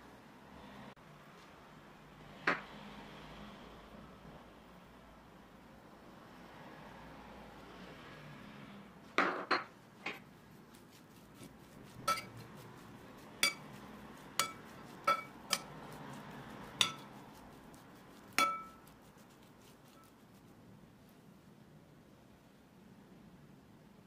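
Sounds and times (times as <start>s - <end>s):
metal spoon clinking ceramic bowl: 12.0s - 12.4s, 13.4s - 13.8s, 14.4s - 15.8s, 16.8s - 17.1s, 18.4s - 18.9s.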